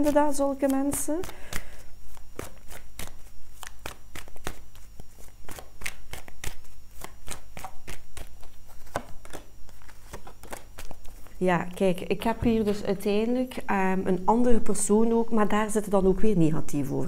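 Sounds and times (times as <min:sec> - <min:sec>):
cards being shuffled: 0:00.0 - 0:11.4.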